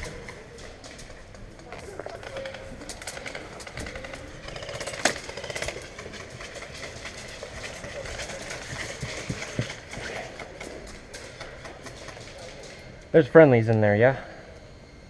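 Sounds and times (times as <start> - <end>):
gear rattling: 0.0 - 12.9
rapid sharp clicks: 2.0 - 12.8.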